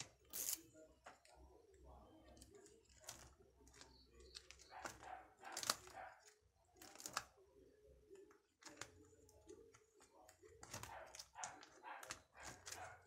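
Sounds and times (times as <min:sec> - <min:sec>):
faint handling clicks and rustles: 0:00.0 - 0:07.4.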